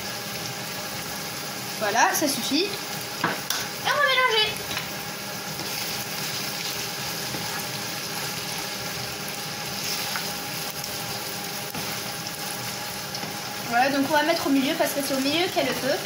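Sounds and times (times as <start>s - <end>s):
seafood sizzling in a frying pan: 0.0s - 16.0s.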